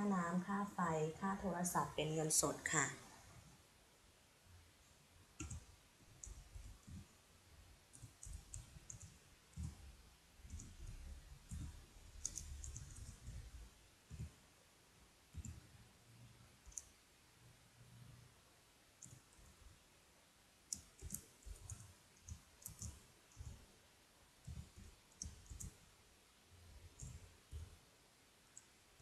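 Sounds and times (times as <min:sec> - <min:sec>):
keyboard typing clicks: 0:05.4 - 0:07.0, 0:07.9 - 0:09.8, 0:10.5 - 0:13.5, 0:15.4 - 0:15.6, 0:16.6 - 0:16.9, 0:19.0 - 0:19.3, 0:20.7 - 0:23.6, 0:24.5 - 0:25.8, 0:27.0 - 0:27.7.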